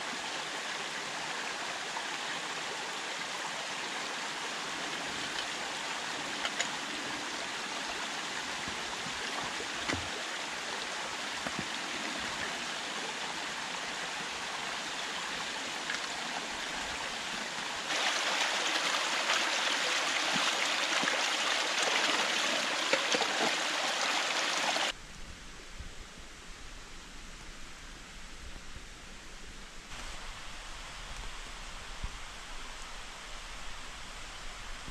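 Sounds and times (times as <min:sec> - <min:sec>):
stream splashing over stones: 0:00.0 - 0:25.0.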